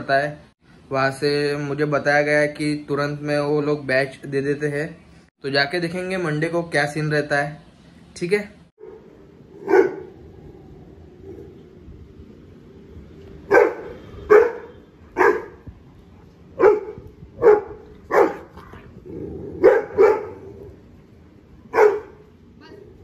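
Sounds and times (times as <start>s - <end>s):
dog barking: 9.6s - 10.1s, 13.5s - 15.6s, 16.6s - 18.6s, 19.6s - 20.5s, 21.7s - 22.2s.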